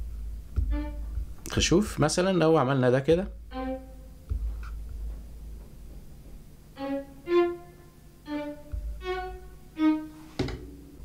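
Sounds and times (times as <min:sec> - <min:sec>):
sustained synthesizer notes: 0:03.2 - 0:06.2.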